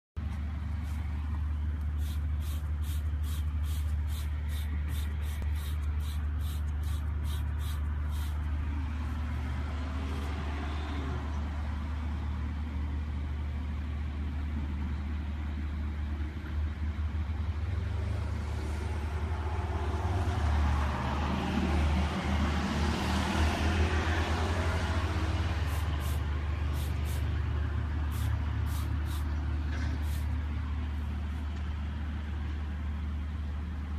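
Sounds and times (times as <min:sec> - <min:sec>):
spray bottle spraying: 0:01.8 - 0:08.4, 0:25.7 - 0:27.3, 0:28.1 - 0:29.3, 0:30.0 - 0:30.3.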